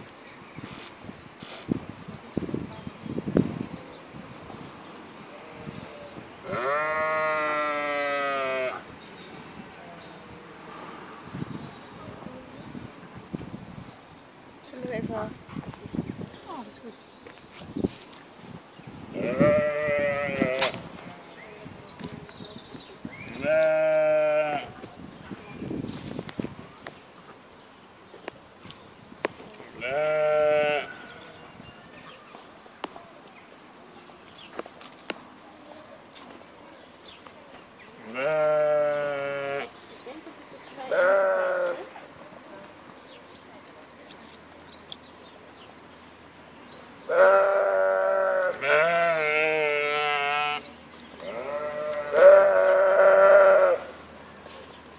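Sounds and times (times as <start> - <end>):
sheep bleating: 6.4 - 8.8, 19.2 - 20.7, 23.4 - 24.7, 29.8 - 31.0, 38.1 - 39.7, 40.9 - 41.9, 47.1 - 53.9.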